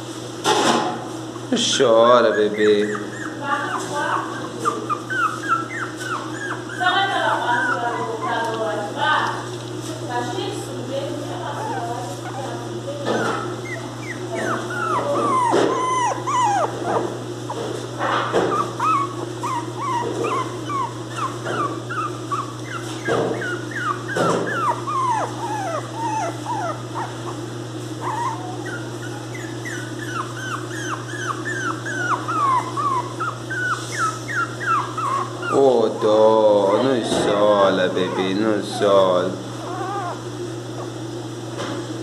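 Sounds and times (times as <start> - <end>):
puppy whining and crying: 1.4 - 9.0, 11.4 - 41.1.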